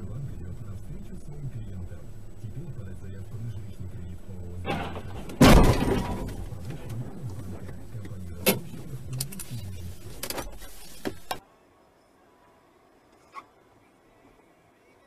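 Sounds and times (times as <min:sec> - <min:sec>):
car engine humming: 0:00.0 - 0:11.4
car crash bang: 0:04.7 - 0:07.7.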